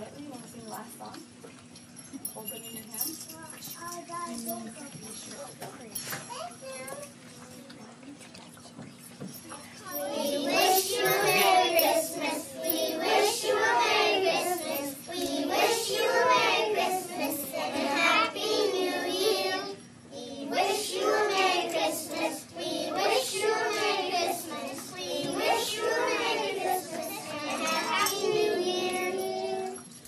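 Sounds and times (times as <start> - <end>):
young children singing: 9.9 - 30.0.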